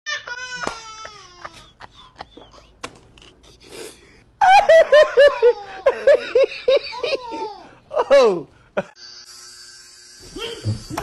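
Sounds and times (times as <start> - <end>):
toddler giggling: 5.2 - 7.7.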